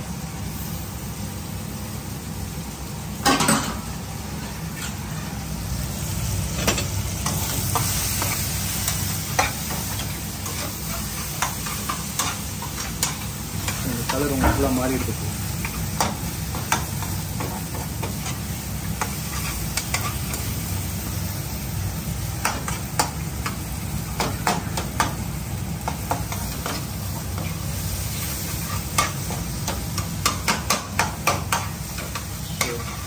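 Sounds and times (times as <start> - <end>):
vegetables sizzling in oil: 0.0 - 33.0.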